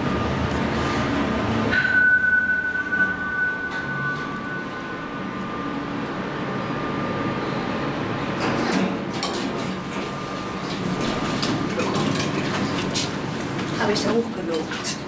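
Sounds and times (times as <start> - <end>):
elevator running with thin whine: 0.0 - 15.0
elevator clicks and rattles: 8.4 - 10.1, 10.7 - 15.0.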